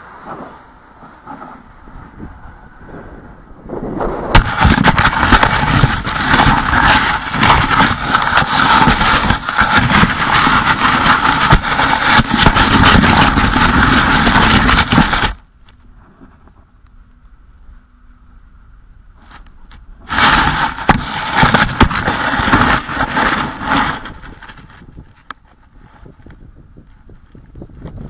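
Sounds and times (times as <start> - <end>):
gondola hitting ground: 0.0 - 15.4
scraping and rattling across soil: 0.0 - 16.9, 19.2 - 28.0.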